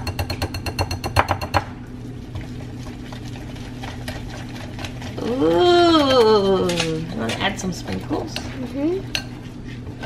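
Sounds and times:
whisk clinking against glass bowl: 0.0 - 1.7
steady low hum: 0.0 - 10.0.

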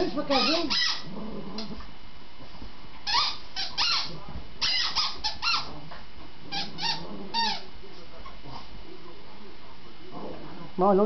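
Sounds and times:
squeaky dog toy squeaks: 0.3 - 1.1, 3.0 - 5.7.

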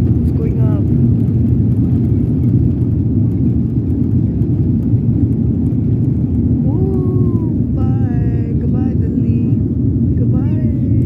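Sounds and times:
wheels rolling on runway: 0.0 - 7.8
jet engines at takeoff thrust: 0.0 - 11.0.

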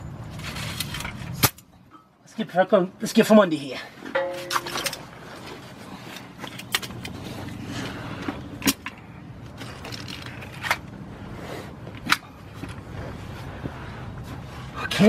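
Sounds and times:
low steady hum: 3.9 - 15.0.

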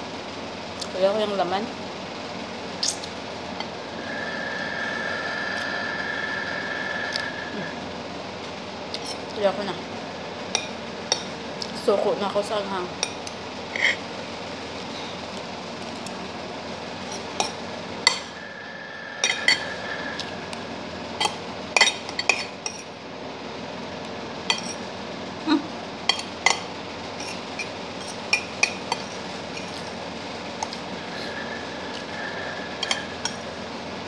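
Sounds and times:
steady background noise: 0.0 - 34.0
cutlery scraping a plate: 19.2 - 20.3, 21.2 - 22.9, 24.5 - 24.9, 26.1 - 30.0, 32.8 - 33.5.

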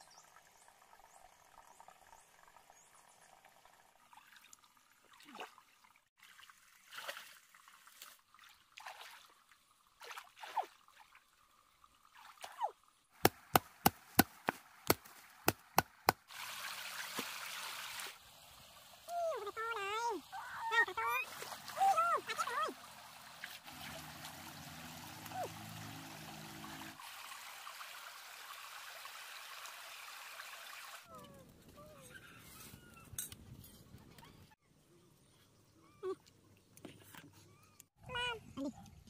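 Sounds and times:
stream water splashing: 0.8 - 31.1.

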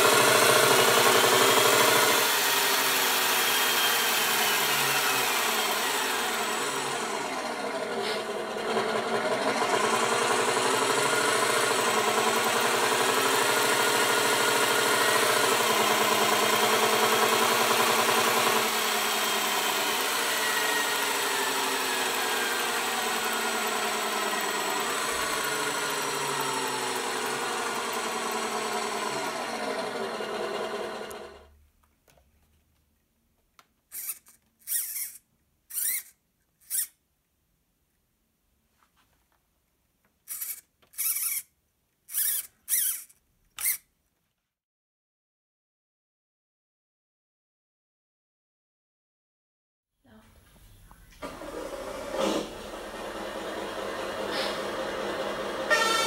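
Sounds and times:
servo whining: 0.0 - 31.5, 33.9 - 37.0, 40.3 - 41.5, 42.1 - 43.8, 51.1 - 56.0
simulated truck diesel engine: 0.0 - 31.5, 52.0 - 56.0.

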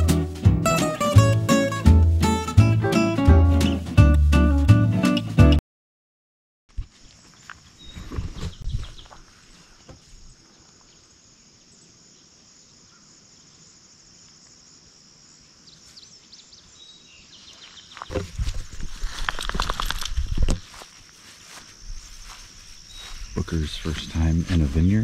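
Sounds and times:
footsteps through grass: 6.7 - 10.9, 17.3 - 25.0
crickets and insects chirring: 6.7 - 25.0.

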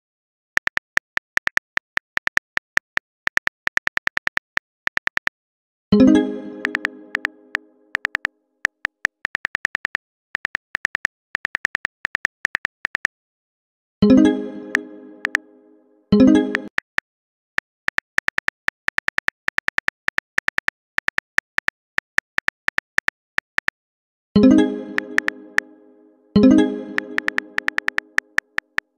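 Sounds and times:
phone keyboard typing clicks: 0.6 - 5.4, 6.6 - 7.3, 7.9 - 13.1, 14.7 - 15.4, 17.6 - 23.8, 25.0 - 25.7, 27.0 - 28.9.

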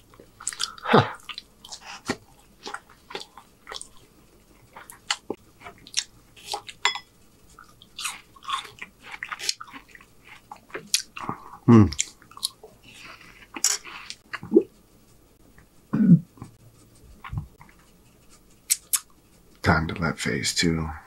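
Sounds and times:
person chewing with mouth smacks: 0.1 - 6.8, 7.5 - 14.8, 18.6 - 19.1.

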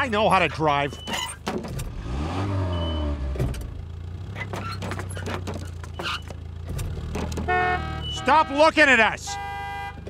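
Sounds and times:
car engine revving: 1.7 - 8.4
knock and light clatters: 4.4 - 7.5.

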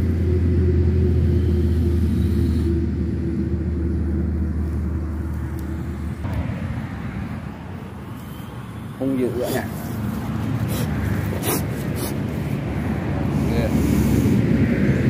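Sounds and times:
low rumble: 0.0 - 6.9.

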